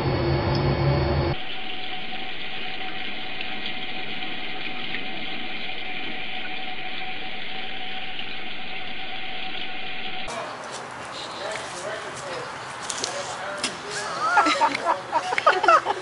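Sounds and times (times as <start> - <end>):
machine hiss and hum: 0.0 - 10.3.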